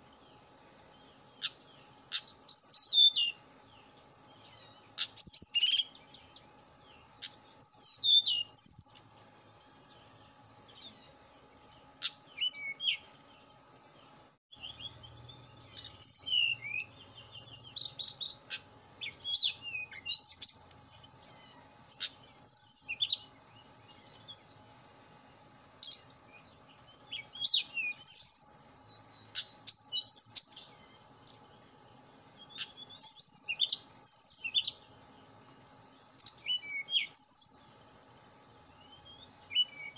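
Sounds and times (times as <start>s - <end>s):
faint steady hum: 0.0s - 39.9s
flycatcher chirps and whistles: 0.8s - 9.1s, 12.0s - 13.2s, 14.5s - 25.2s, 25.8s - 31.0s, 31.9s - 34.8s, 36.0s - 37.7s, 38.3s - 39.9s.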